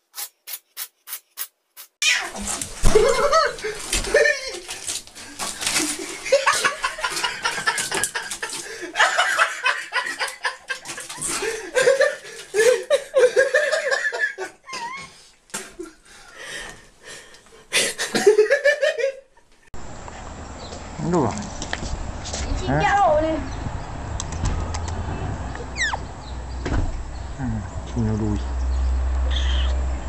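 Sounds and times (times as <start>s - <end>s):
person laughing hard: 2.8s - 4.7s, 5.8s - 15.1s, 17.7s - 19.2s.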